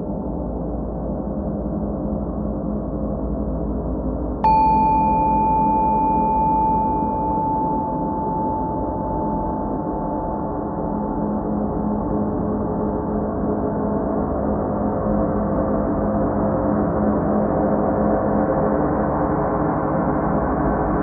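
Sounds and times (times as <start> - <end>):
high ringing tone: 4.4 - 13.2
ambient drone music: 4.5 - 14.7.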